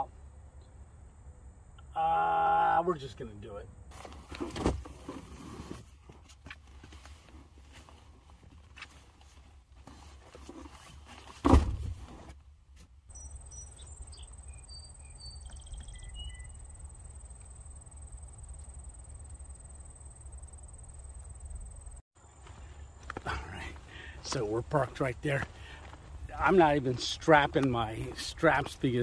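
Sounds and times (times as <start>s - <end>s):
backpack rustling: 3.9s - 12.3s
sharp thump: 11.4s - 11.9s
bird chirps: 13.1s - 17.2s.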